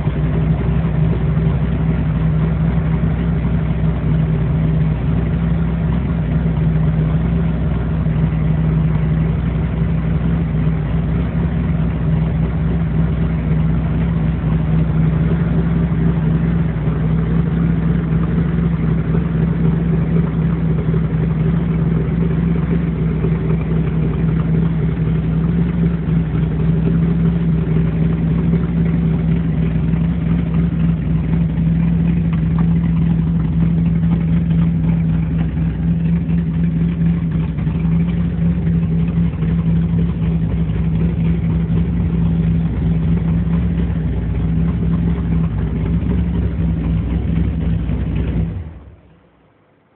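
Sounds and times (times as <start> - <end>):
car engine idling: 0.0 - 49.9.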